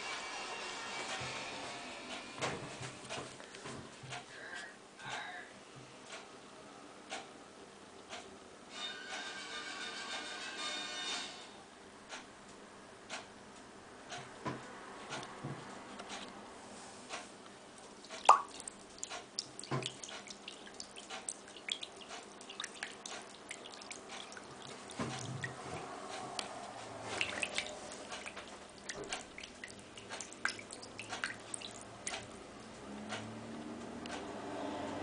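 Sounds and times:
low steady hum: 0:15.9 - 0:34.0
water dripping and splashing in sink: 0:17.8 - 0:32.4.

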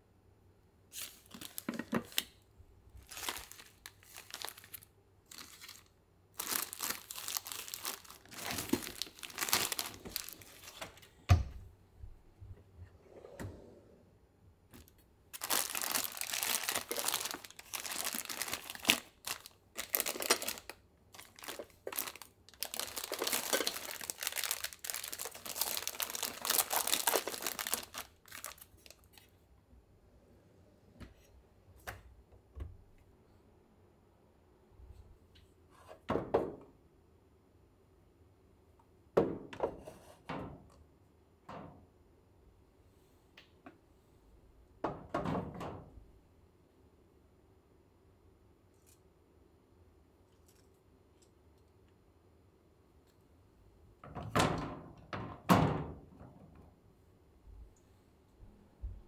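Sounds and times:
plastic wrappers crinkling: 0:00.9 - 0:02.4, 0:03.0 - 0:11.0, 0:15.3 - 0:29.3.

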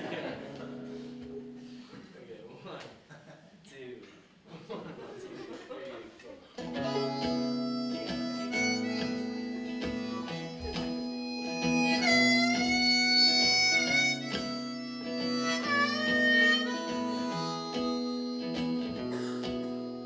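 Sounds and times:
harmonica melody: 0:06.6 - 0:20.0
strummed acoustic guitar: 0:06.6 - 0:20.0.

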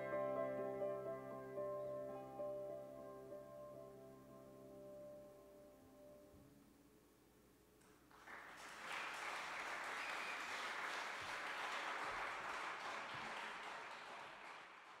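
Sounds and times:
audience applauding: 0:08.1 - 0:15.0.

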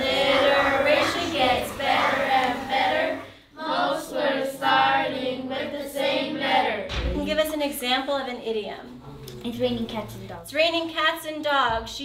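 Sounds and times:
group of voices singing: 0:00.0 - 0:06.9.

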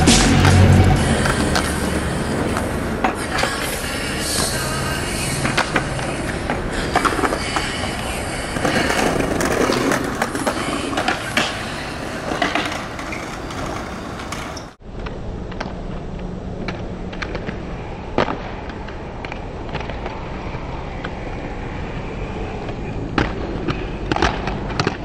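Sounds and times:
skate wheels rolling on concrete: 0:00.0 - 0:25.0
skateboard clacks and knocks: 0:00.4 - 0:14.8.

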